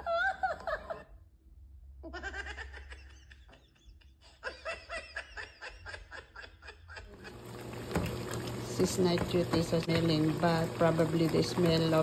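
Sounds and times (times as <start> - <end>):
person laughing: 0.0 - 1.2, 2.0 - 7.4.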